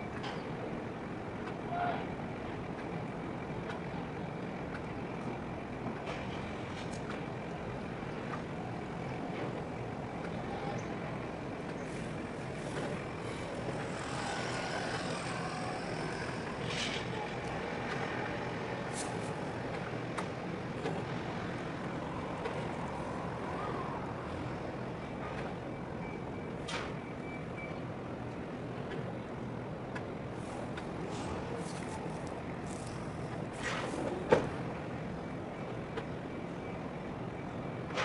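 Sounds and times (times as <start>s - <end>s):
broad rumbling noise: 0.0s - 25.7s
low engine hum: 0.0s - 27.7s
faint broken beeping: 25.2s - 27.8s.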